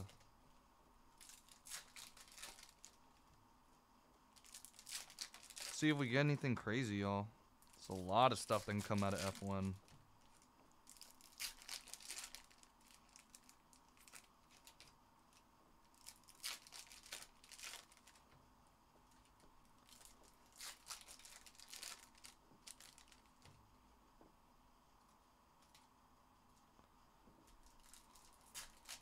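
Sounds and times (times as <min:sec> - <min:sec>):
foil wrappers tearing and crinkling: 0:00.0 - 0:00.2, 0:01.2 - 0:03.0, 0:04.4 - 0:06.0, 0:07.6 - 0:18.3, 0:19.2 - 0:23.5, 0:27.5 - 0:29.0.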